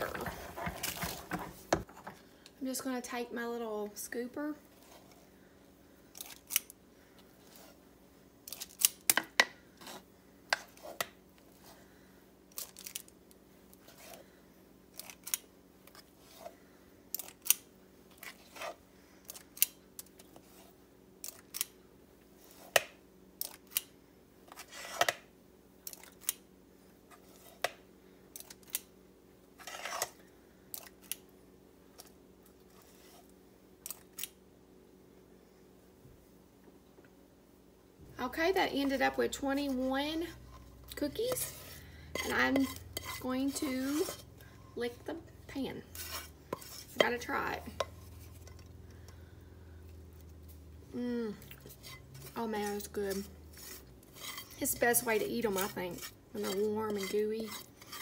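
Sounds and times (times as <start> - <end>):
scoop scraping saucepan: 0.0 - 1.6, 29.6 - 30.2, 38.3 - 48.8, 51.6 - 58.0.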